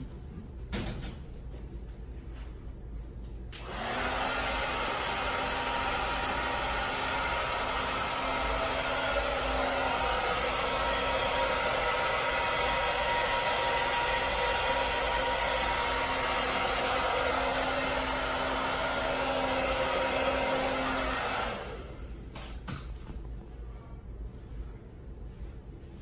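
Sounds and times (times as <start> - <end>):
hair dryer blowing: 3.6 - 22.6.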